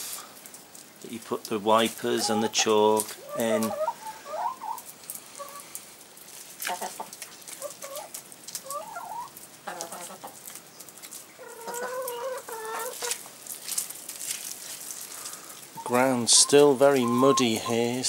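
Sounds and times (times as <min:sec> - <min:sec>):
hens clucking: 0:01.6 - 0:05.8, 0:06.6 - 0:10.5, 0:11.3 - 0:13.3, 0:15.7 - 0:18.0.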